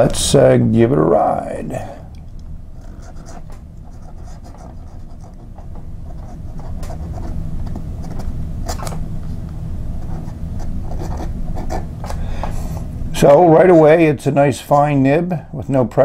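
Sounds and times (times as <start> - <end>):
pen nib scratching paper: 2.8 - 7.4, 8.0 - 8.9, 10.0 - 11.9.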